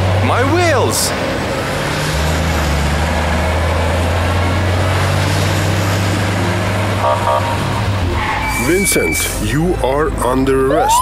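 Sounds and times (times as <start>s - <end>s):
vehicle engine running: 0.0s - 10.8s
road noise: 0.0s - 11.0s.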